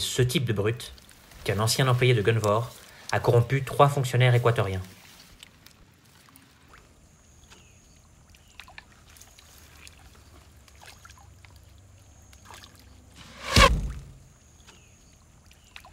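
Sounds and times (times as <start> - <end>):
loud whoosh: 13.2 - 14.3.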